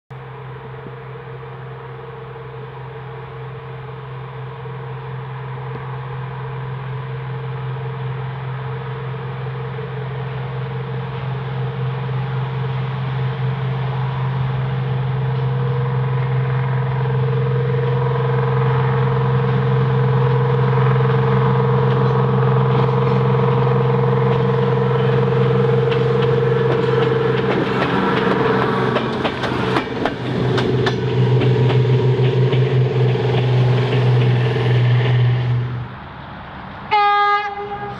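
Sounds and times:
diesel engine working: 0:00.2 - 0:37.9
wheels clattering over rail: 0:20.8 - 0:35.8.

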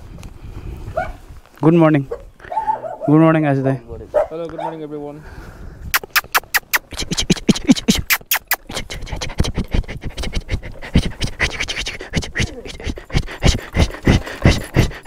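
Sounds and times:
dog claws scratching wood: 0:06.0 - 0:15.0
dog panting: 0:06.0 - 0:15.0.

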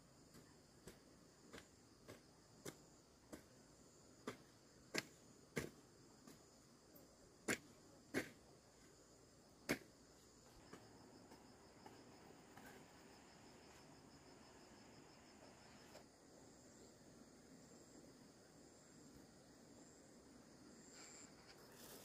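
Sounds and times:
crickets trilling: 0:00.0 - 0:22.0.

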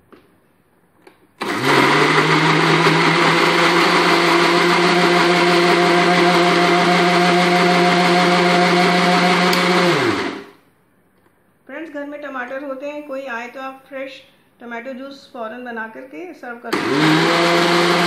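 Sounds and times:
electric mixer grinder running: 0:01.4 - 0:10.5, 0:16.8 - 0:18.0.

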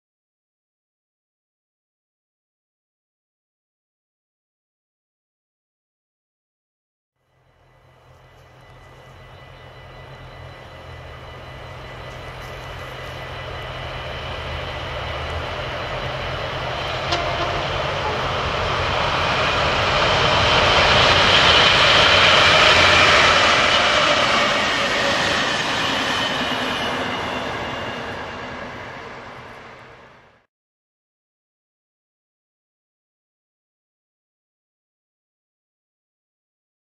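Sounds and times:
train rumbling past: 0:07.2 - 0:30.5.

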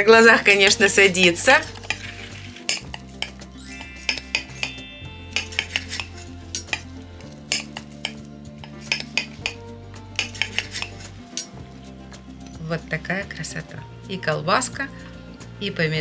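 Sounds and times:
quiet background music: 0:00.0 - 0:16.0
cutlery clicking on plate: 0:07.5 - 0:09.6, 0:10.2 - 0:11.6.

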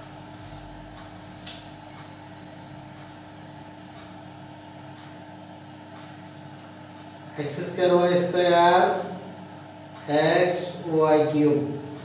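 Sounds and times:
low steady tone: 0:00.0 - 0:04.6
background hum: 0:00.0 - 0:12.0.

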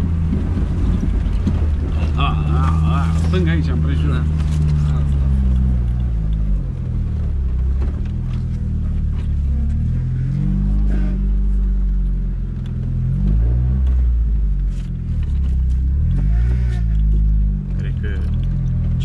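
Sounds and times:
knocks over bumps: 0:00.0 - 0:05.1
engine running at low revs: 0:00.0 - 0:19.0.

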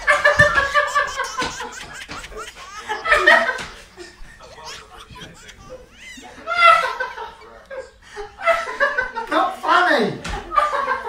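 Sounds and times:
woman laughing hard: 0:00.0 - 0:07.6.

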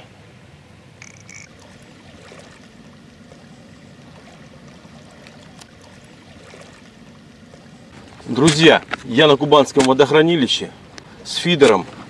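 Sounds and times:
small waves lapping on concrete: 0:01.0 - 0:12.0.

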